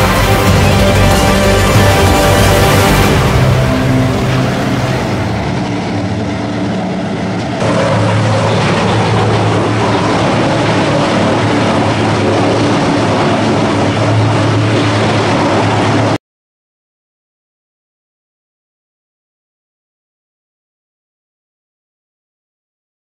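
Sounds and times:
wood chipper running: 0.0 - 16.0.

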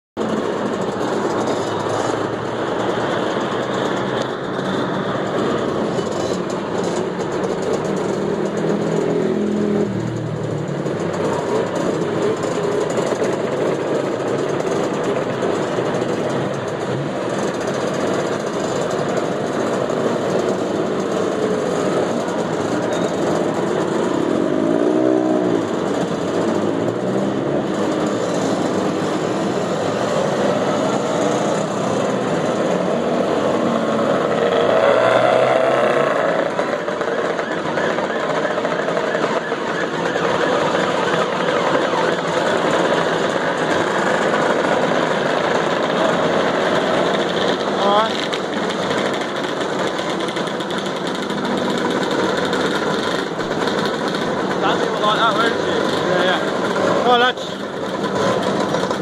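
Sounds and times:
motor scooters revving past: 13.6 - 59.0.

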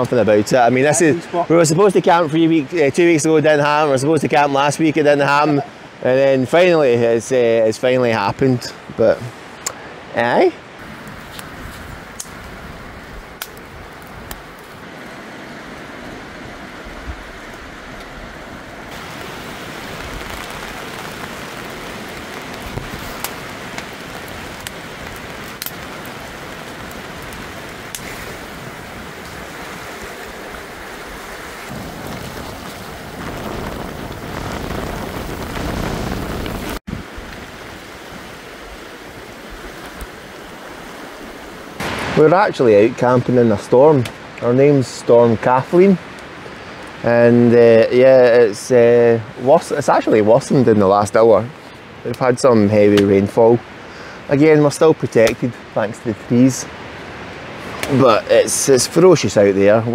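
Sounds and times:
rain: 0.0 - 59.9
wind rushing through trees: 0.0 - 59.9
wood fire crackling: 10.7 - 59.9
wind gust on microphone: 10.8 - 43.0.

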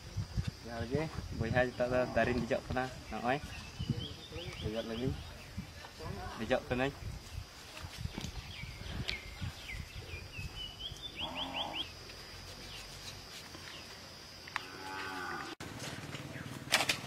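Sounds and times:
birds chirping: 0.9 - 16.7
low animal calls: 11.0 - 11.9.

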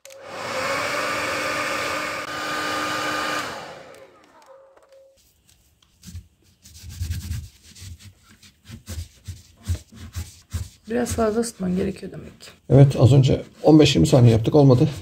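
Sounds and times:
hair dryer blowing: 0.0 - 4.6
motor spinning down: 0.1 - 4.6
rubbing and handling noises: 4.0 - 15.0.

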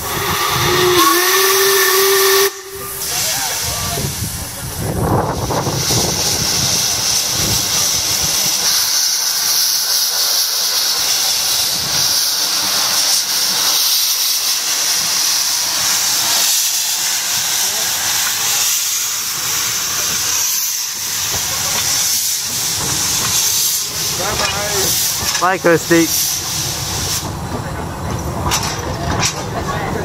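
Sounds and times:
steam locomotive whistle: 0.0 - 3.7
escaping steam hissing: 0.0 - 30.0.

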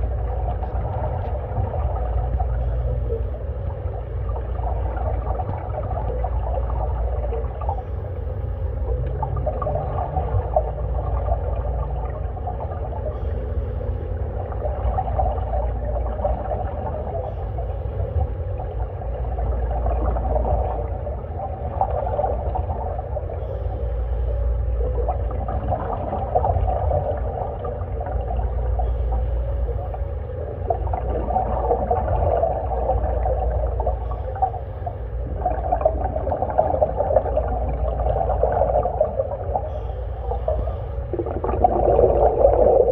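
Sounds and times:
low underwater rumble: 0.0 - 42.9
diver exhaling bubbles: 41.0 - 42.9.

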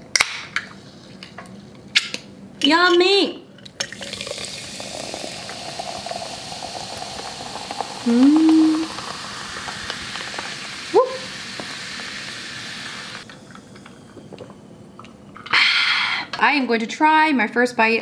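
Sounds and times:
sparkling water fizzing: 3.8 - 14.6
person humming: 8.0 - 9.0.

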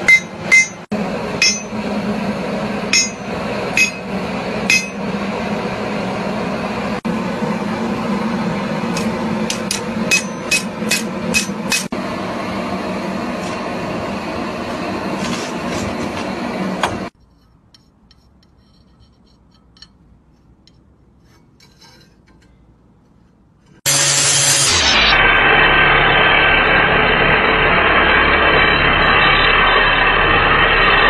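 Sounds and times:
hammer striking steel on anvil: 0.0 - 1.8, 2.9 - 5.1, 8.9 - 11.9
steady drone: 0.0 - 17.2, 23.8 - 31.0.

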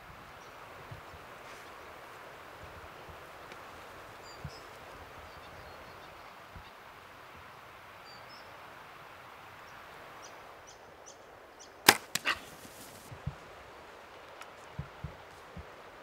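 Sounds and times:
arrow striking: 11.9 - 13.0
bow release crack: 11.9 - 13.1.

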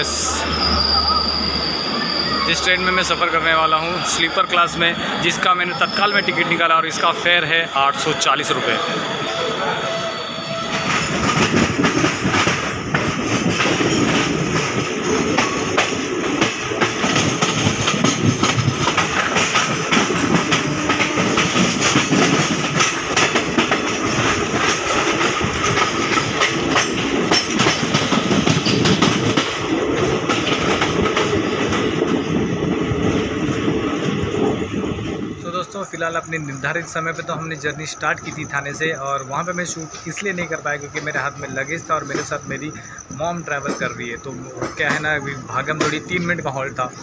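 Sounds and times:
train wheels clattering over rails: 10.5 - 47.0.

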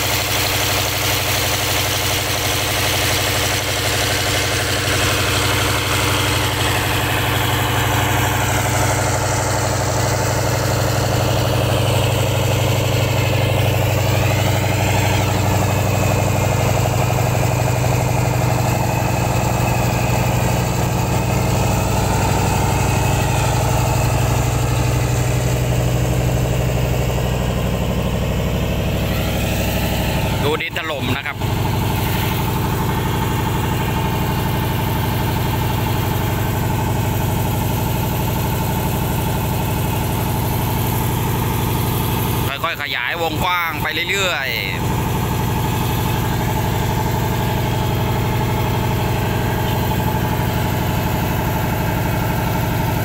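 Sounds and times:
boat engine running steadily: 0.0 - 53.0.

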